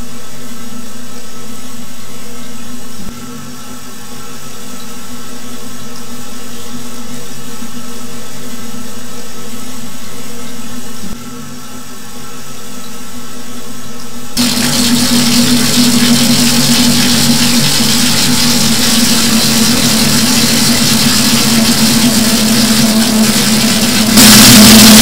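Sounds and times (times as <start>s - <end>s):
steady droning hum: 11.7s - 25.0s
rushing noise: 14.4s - 25.0s.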